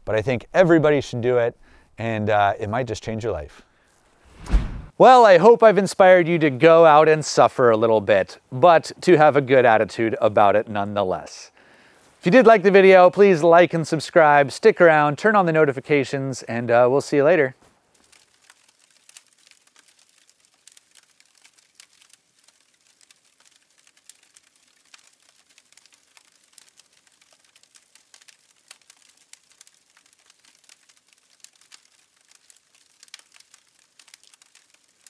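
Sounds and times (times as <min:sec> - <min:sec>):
faint crackling pops: 0:09.9 - 0:35.0.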